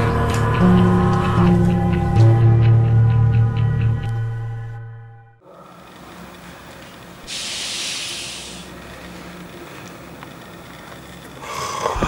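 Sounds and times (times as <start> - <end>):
steady background hiss: 5.4 - 12.0
burst of high hissing: 7.2 - 8.7.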